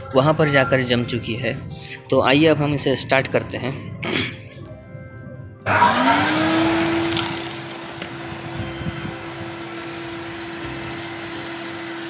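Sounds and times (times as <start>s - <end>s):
vacuum cleaner motor whining: 5.6s - 12.0s
air rushing from hose: 5.7s - 12.0s.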